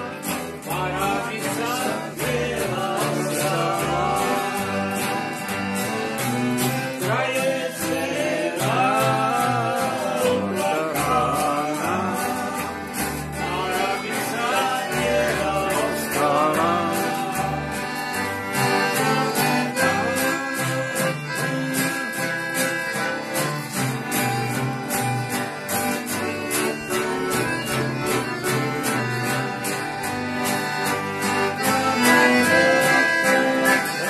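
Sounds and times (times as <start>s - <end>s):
man singing: 0.0s - 5.5s, 6.9s - 20.8s
piano accordion: 0.0s - 34.0s
plucked upright double bass: 0.0s - 34.0s
strummed acoustic guitar: 0.0s - 34.0s.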